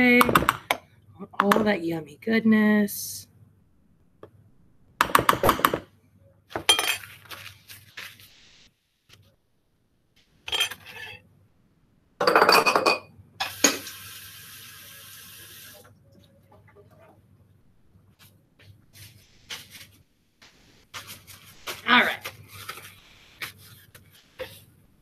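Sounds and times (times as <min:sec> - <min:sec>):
dishes and utensils clattering: 0:06.5 - 0:07.4, 0:10.5 - 0:11.2, 0:12.2 - 0:13.8
water tap running: 0:13.4 - 0:15.9.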